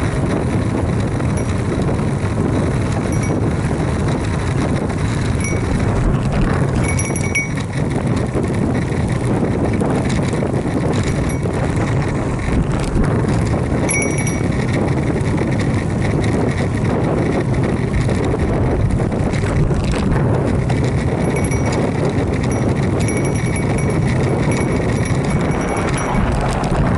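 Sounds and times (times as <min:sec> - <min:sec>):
bicycle tyre and road noise: 0:00.0 - 0:26.9
wind noise on microphone: 0:00.0 - 0:26.9.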